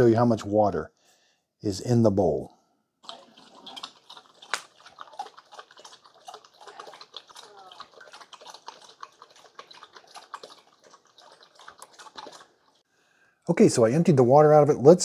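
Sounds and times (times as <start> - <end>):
small water splashes: 3.0 - 12.8
dog lapping water: 3.0 - 12.9.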